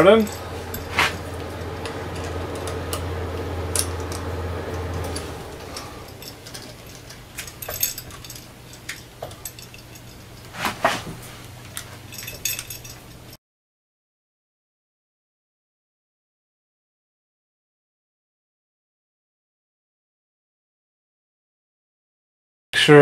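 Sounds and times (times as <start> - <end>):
low hum: 0.0 - 10.5.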